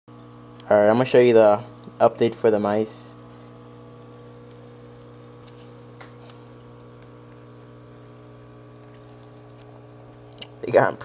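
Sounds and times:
low electrical hum: 0.1s - 11.0s.

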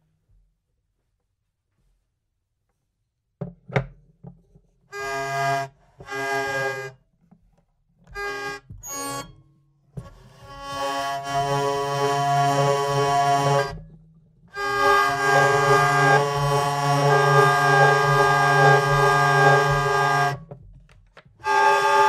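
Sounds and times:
hurdy-gurdy drone: 5.0s - 6.9s, 8.2s - 9.3s, 10.0s - 13.8s, 14.5s - 20.4s, 21.4s - 22.0s.

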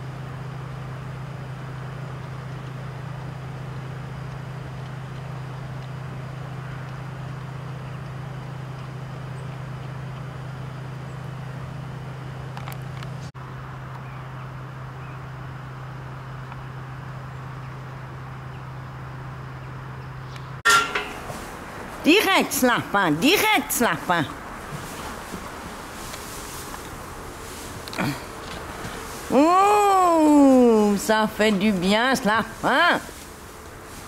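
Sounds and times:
low hum: 0.0s - 34.0s
background hiss: 20.4s - 34.0s.

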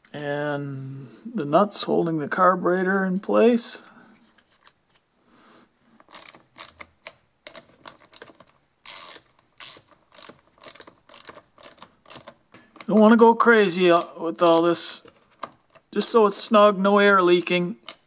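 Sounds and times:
socket ratchet clicking: 6.0s - 13.0s.

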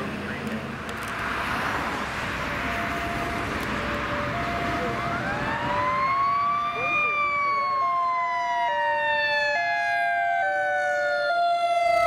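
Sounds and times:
road noise: 0.0s - 12.0s
fire truck siren winding up: 2.4s - 12.0s
two-pitch hi-lo siren tone: 2.5s - 12.0s.

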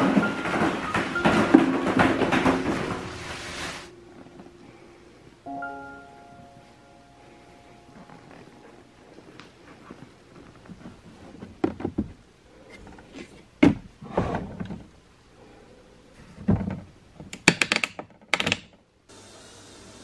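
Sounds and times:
plastic parts clunking: 0.0s - 3.4s, 10.6s - 15.0s.

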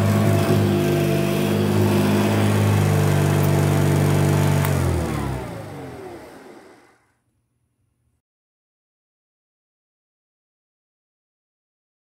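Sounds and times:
vacuum cleaner running on carpet: 0.0s - 7.1s
vacuum switch click: 4.6s - 4.9s.

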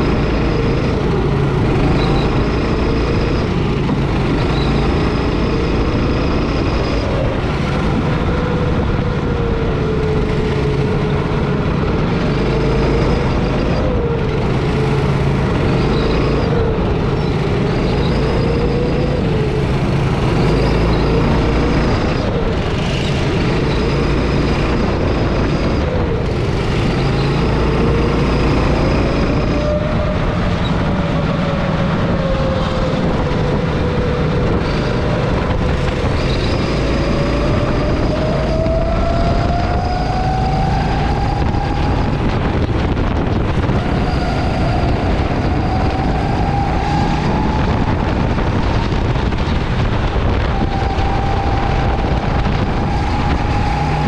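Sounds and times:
go-kart engine running hard: 0.0s - 54.0s.

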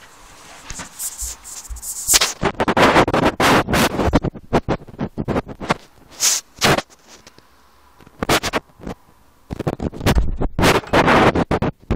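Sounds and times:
fingers rubbing on microphone: 0.0s - 11.7s.

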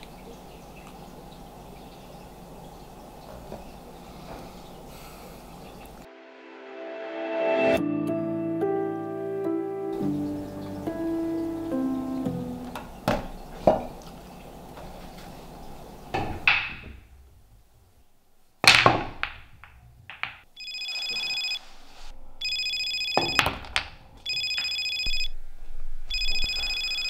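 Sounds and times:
pool balls clacking: 11.7s - 14.3s, 16.1s - 17.2s, 18.6s - 20.5s, 23.1s - 24.7s
phone ringtone: 20.6s - 21.6s, 22.4s - 23.4s, 24.3s - 25.3s, 26.1s - 27.0s.

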